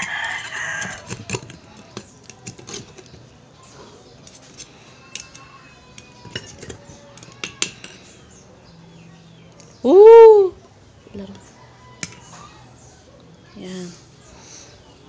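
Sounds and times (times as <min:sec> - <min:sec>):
rooster crowing: 0:00.0 - 0:01.1, 0:11.5 - 0:12.7
knife scraping clam shell: 0:00.1 - 0:03.2.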